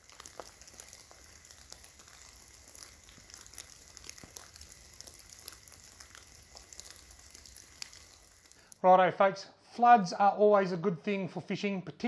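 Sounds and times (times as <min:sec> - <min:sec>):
faint irregular crackling clicks: 0:00.0 - 0:08.8.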